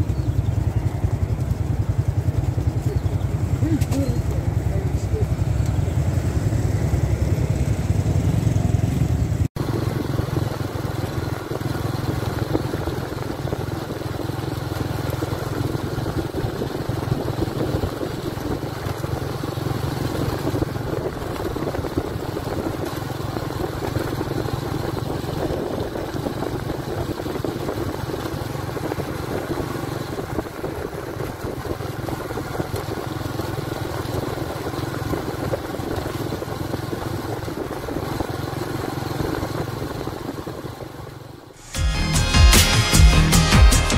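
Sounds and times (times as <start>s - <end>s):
motorcycle engines: 0.0s - 41.8s
low engine hum: 0.0s - 43.9s
steady rushing noise: 39.6s - 43.9s.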